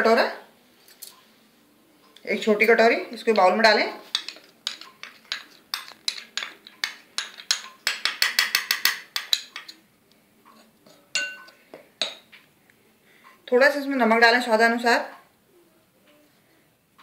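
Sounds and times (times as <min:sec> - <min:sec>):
spoon clinking against bowls: 0:04.0 - 0:09.8, 0:10.5 - 0:12.3.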